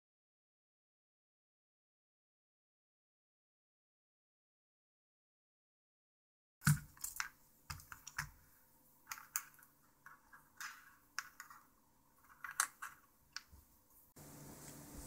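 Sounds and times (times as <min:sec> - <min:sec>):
small plastic parts clicking: 0:06.6 - 0:13.6.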